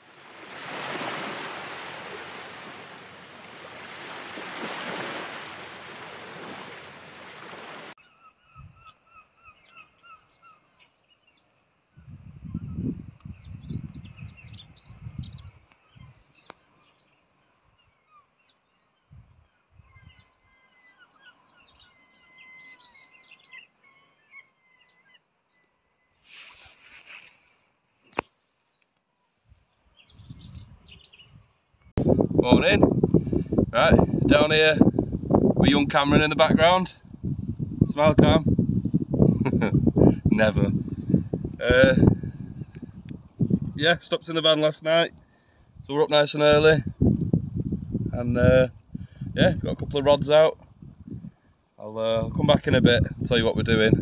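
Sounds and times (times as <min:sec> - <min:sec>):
wind gusts on microphone: 0:00.0 - 0:08.9, 0:11.9 - 0:16.5, 0:19.1 - 0:20.5, 0:29.5 - 0:54.0
birds chirping: 0:00.0 - 0:51.2
short pips: 0:26.3 - 0:28.4.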